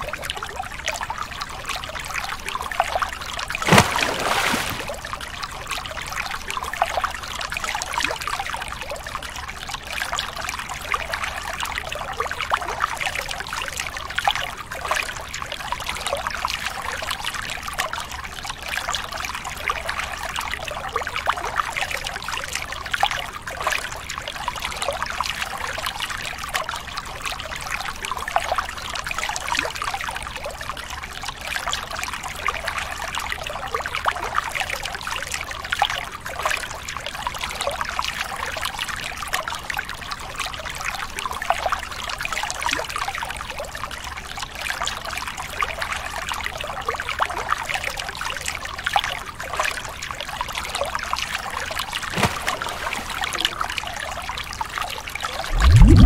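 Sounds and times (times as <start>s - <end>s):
water trickling over rocks: 0.3s - 12.3s, 48.4s - 56.0s.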